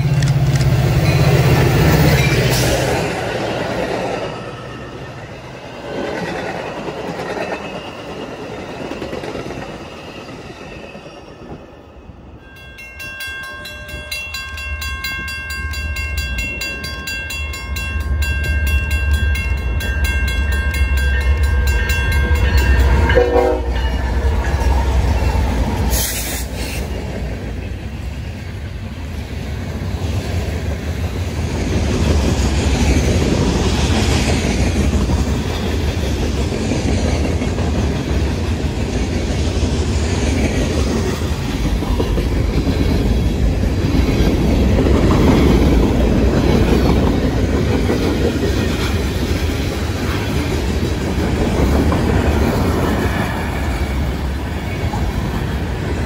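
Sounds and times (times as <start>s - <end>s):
diesel locomotive passing: 0.0s - 56.0s
train horn blast: 22.3s - 24.0s.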